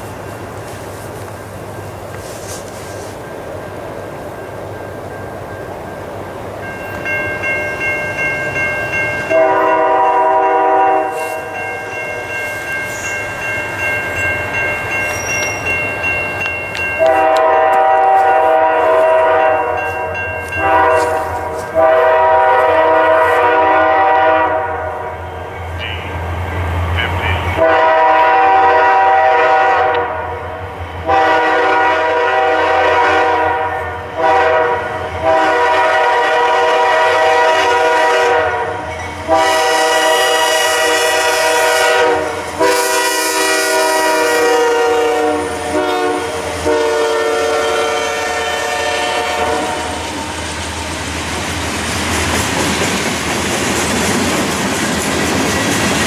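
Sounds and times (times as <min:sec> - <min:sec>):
train wheels on rails: 0:00.0 - 0:56.0
train air horn blasts: 0:09.2 - 0:11.6, 0:17.0 - 0:26.2, 0:27.2 - 0:50.2
clickety-clack over rail joints: 0:14.0 - 0:17.9, 0:50.4 - 0:56.0.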